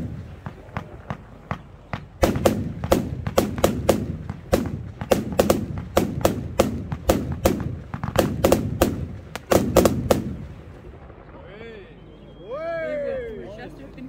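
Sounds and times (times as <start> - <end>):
firework bangs: 0.0 - 12.8
low rumble: 8.7 - 14.0.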